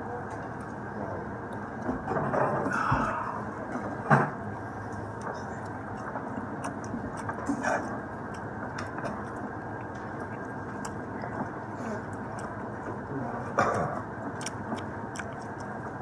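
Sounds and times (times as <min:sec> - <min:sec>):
person chewing: 0:00.3 - 0:01.8, 0:04.6 - 0:16.0
wet mouth clicks: 0:13.7 - 0:16.0.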